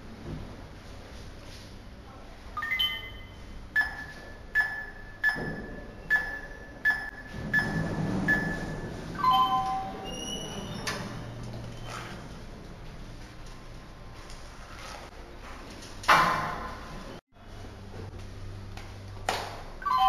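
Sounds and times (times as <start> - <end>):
keypad beeps: 2.6 - 10.3
rising wake-up chime: 9.2 - 10.0.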